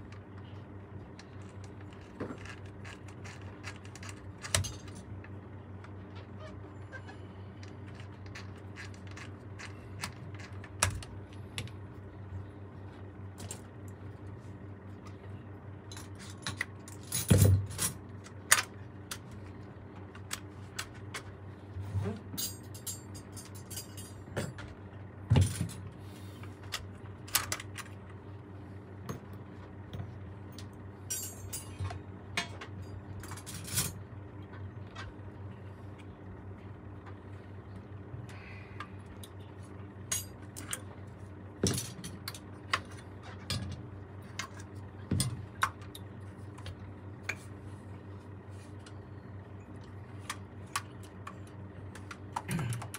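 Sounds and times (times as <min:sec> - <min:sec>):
steady low hum: 0:00.0 - 0:52.9
metal tools clicking and clinking: 0:22.3 - 0:24.6, 0:31.1 - 0:34.0.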